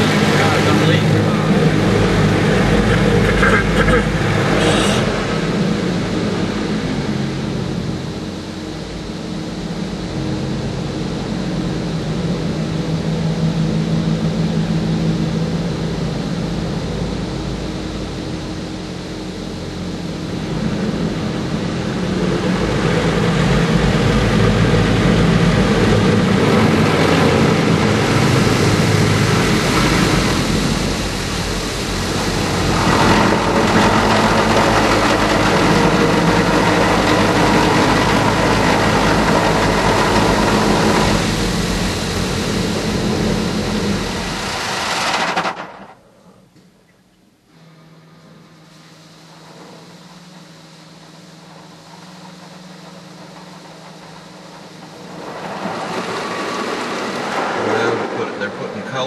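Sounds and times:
car wash water spray hissing: 0.0s - 8.5s, 19.2s - 46.0s, 47.6s - 59.0s
low machine hum: 0.0s - 59.0s.

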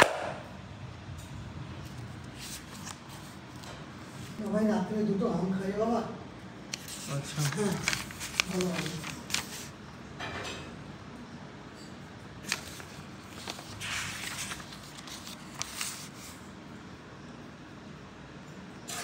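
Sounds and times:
paper pages rustling and riffling: 2.2s - 4.4s, 6.7s - 9.8s, 12.4s - 16.4s.

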